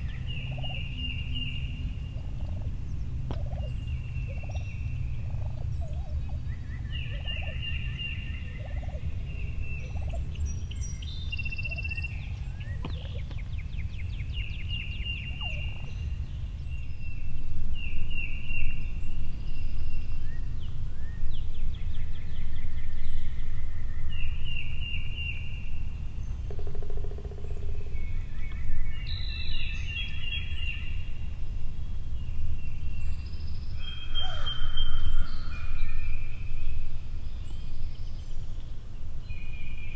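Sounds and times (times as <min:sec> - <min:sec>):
steady low rumble: 0:00.0 - 0:39.9
wild turkeys gobbling: 0:02.2 - 0:02.7, 0:03.3 - 0:03.7, 0:05.2 - 0:06.3, 0:08.6 - 0:09.1, 0:09.8 - 0:10.2.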